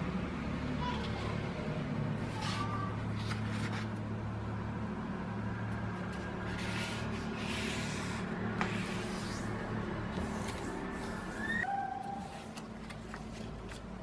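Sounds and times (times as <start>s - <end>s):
paper rustling and sliding: 2.2s - 4.1s, 5.9s - 14.0s.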